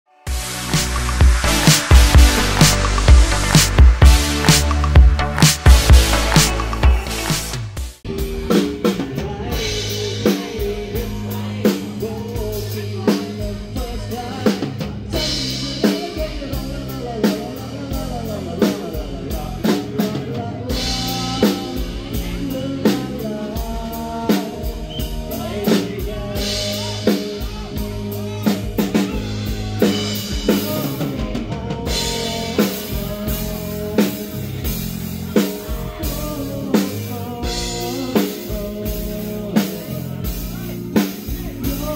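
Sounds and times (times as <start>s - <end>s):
live band playing: 0.1s - 41.9s
drum kit beat: 0.3s - 41.9s
electric bass guitar: 0.3s - 41.9s.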